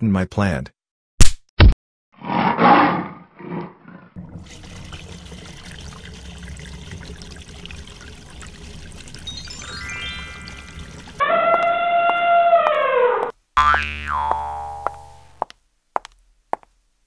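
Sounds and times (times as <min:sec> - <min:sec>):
water pouring onto ground: 0:04.3 - 0:11.2
loud animal cry: 0:11.2 - 0:13.3.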